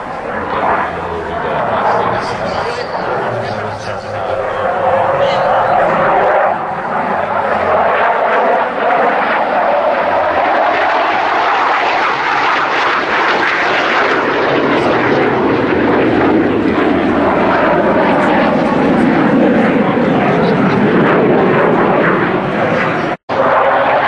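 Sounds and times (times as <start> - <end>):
jet engine flyover: 0.0 - 24.0.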